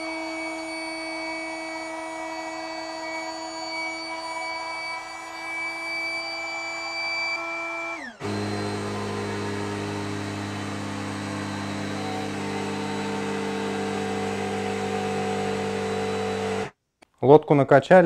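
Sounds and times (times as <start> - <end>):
electric pump humming: 0.0 - 16.7.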